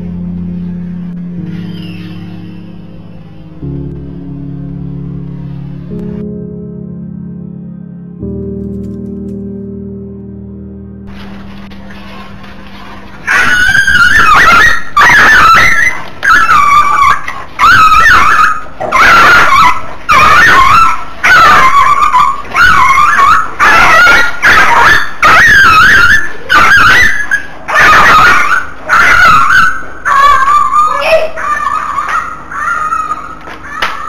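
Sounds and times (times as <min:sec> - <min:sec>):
small dog yelping in pain: 0:13.2 - 0:34.0.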